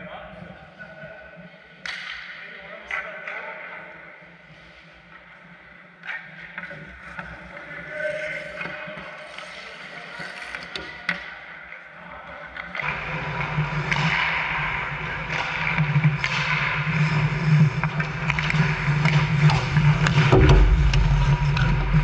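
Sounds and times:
hockey sticks and puck clacking: 1.8 - 3.4, 12.5 - 20.2
steady low hum: 20.3 - 22.0.

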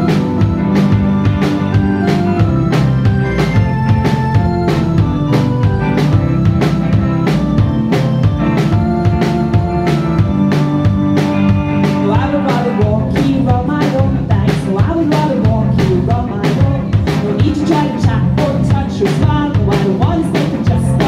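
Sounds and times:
drum kit beat: 0.0 - 21.0
guitars and keyboard: 0.0 - 21.0
person singing: 11.9 - 21.0.

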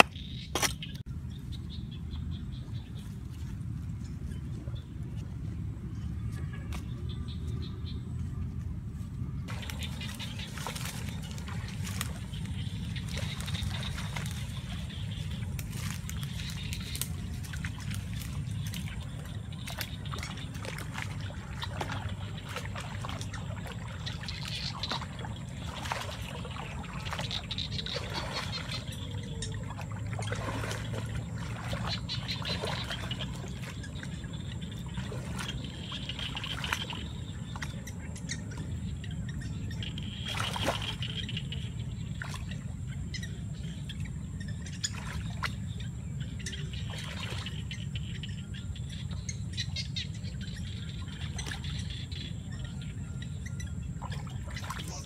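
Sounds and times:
birds chirping: 0.0 - 8.6, 9.2 - 55.0
low rumble: 1.0 - 40.0
water splashing and trickling: 9.4 - 55.0.

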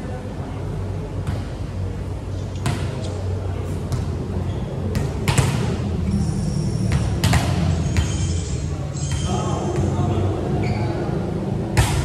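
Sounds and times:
steady low hum: 0.0 - 12.0
volleyballs slapping: 4.9 - 5.8, 6.9 - 8.1, 11.8 - 12.0.

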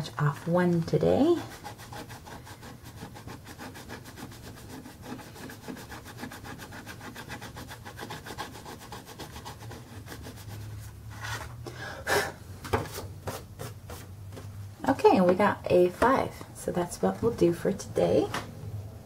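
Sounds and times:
scratch card being scratched: 1.5 - 10.7.

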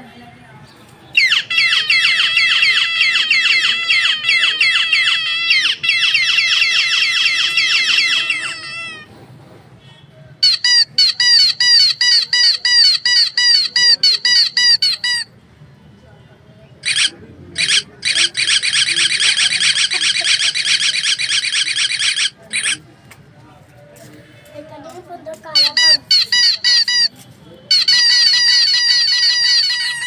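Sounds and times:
dog toy squeaking: 1.2 - 9.1, 10.4 - 15.3, 16.8 - 22.9, 25.5 - 30.0.

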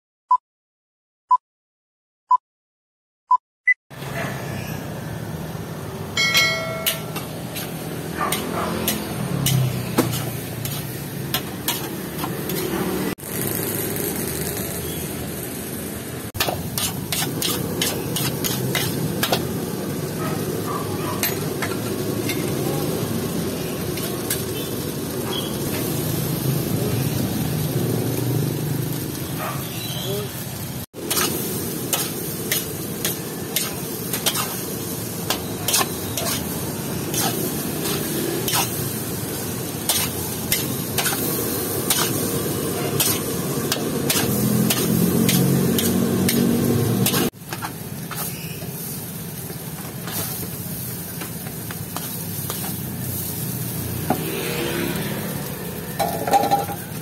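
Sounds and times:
street traffic: 3.9 - 57.0
fried rice sizzling: 5.4 - 57.0
metal spatula clanging in a wok: 6.2 - 7.7, 21.2 - 22.5, 42.9 - 46.4, 56.0 - 56.9.

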